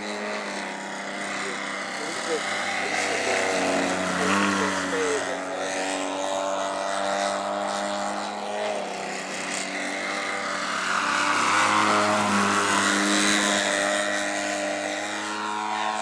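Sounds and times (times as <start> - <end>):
model plane motor buzzing: 0.0 - 16.0.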